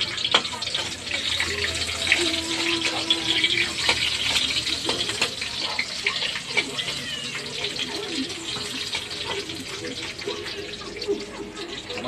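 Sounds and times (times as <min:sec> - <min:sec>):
chicken sizzling in a wok: 0:00.0 - 0:12.0.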